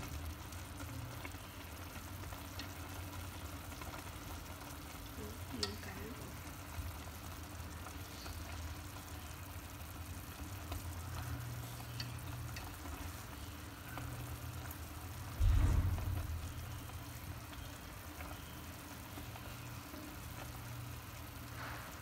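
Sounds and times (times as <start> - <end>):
soup bubbling: 0.0 - 22.0
steady low hum: 10.5 - 17.5
low thump in pot: 15.3 - 16.7.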